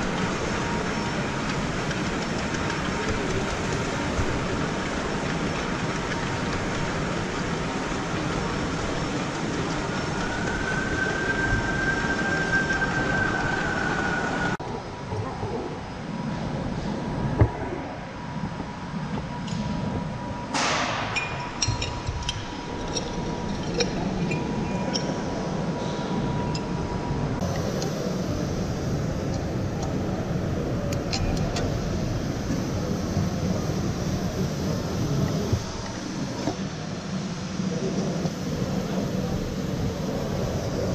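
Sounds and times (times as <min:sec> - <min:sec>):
model train wheels rattling on rails: 0:00.0 - 0:14.1
low rumble of busy hall: 0:00.0 - 0:40.9
wheels squealing on curve: 0:09.9 - 0:14.6.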